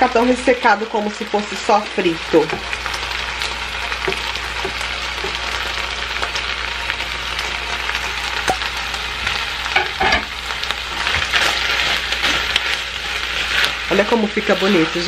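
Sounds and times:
chicken sizzling in pan: 0.0 - 15.0.

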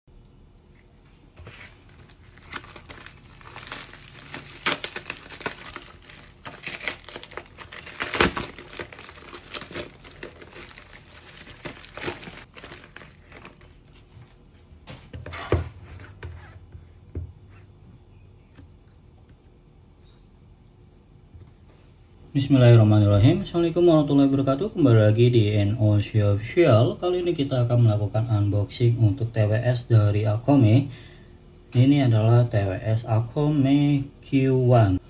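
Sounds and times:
plastic mailer crinkling: 1.4 - 14.0.

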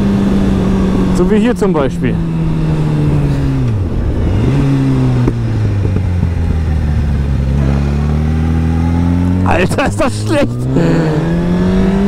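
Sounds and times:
wind rush: 0.0 - 7.5
motorcycle engine running: 0.0 - 12.0.

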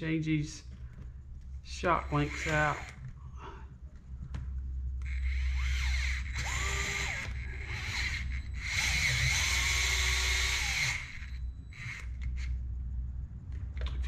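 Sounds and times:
electric screwdriver motor whine: 2.0 - 3.0, 5.0 - 12.5.

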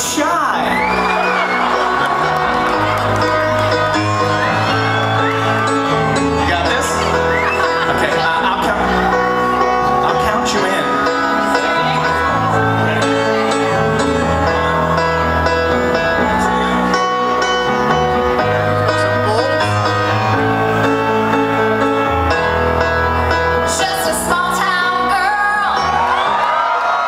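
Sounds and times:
rock band playing live: 0.0 - 26.5
woman singing: 23.7 - 25.8.

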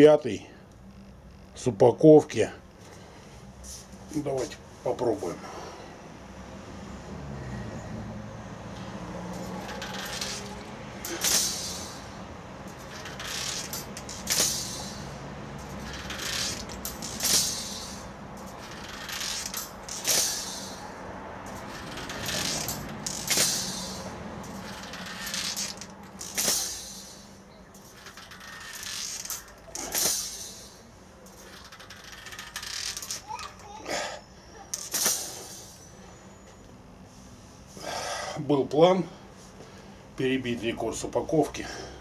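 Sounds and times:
steel spring coils clinking and scraping: 8.6 - 37.2.

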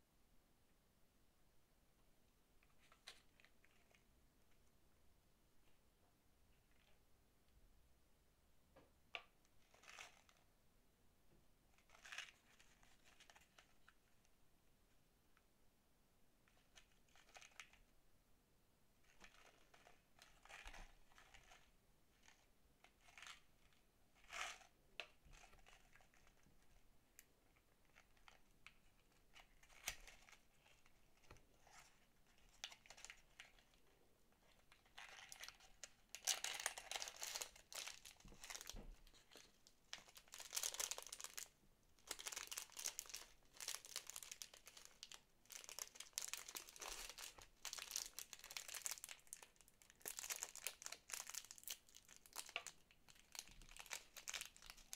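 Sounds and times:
plastic bag crinkling: 34.4 - 54.9.

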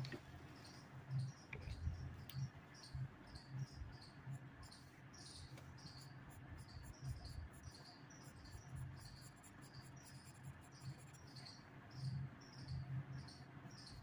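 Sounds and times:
faint cricket chirping: 0.0 - 14.0
low steady hum: 0.0 - 14.0.

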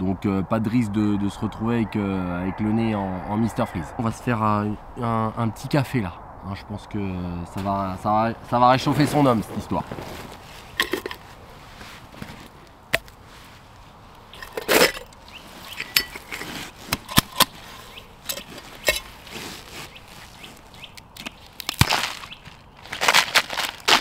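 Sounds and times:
scraping rustle: 7.6 - 24.0.

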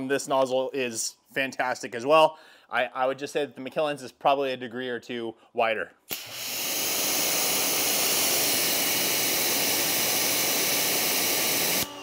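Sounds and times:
pressure washer spraying: 6.1 - 11.9.

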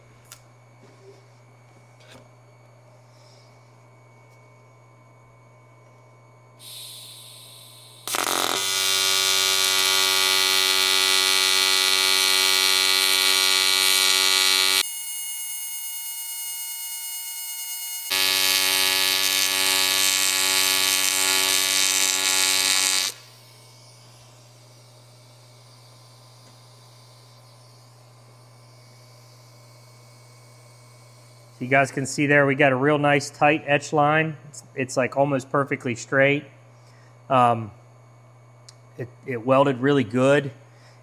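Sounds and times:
steady low hum: 0.0 - 14.8, 18.1 - 41.0
shielding gas hissing: 6.6 - 8.4
welding arc buzzing: 6.6 - 32.8.

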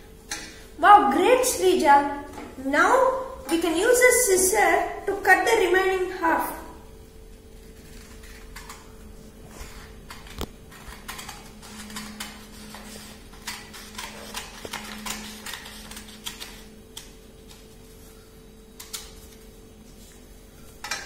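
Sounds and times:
paper rustling: 7.5 - 20.3
scissors snipping paper: 7.6 - 8.9, 9.7 - 17.7.

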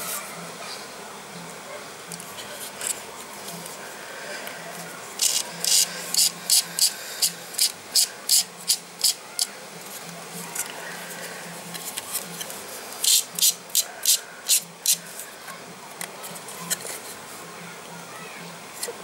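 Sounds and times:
fast hissing beat: 3.6 - 15.3.

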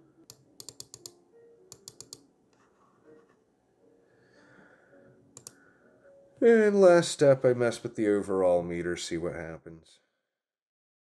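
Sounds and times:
computer mouse clicks: 0.3 - 2.6, 5.4 - 5.6.

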